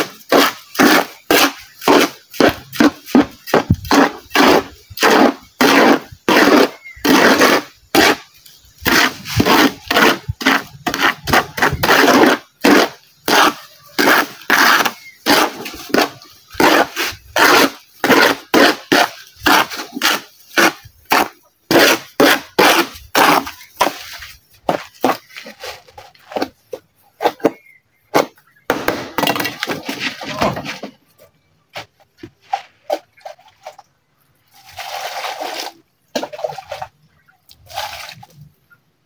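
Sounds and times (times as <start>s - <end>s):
trowel scraping mortar on steel: 0.0s - 26.5s.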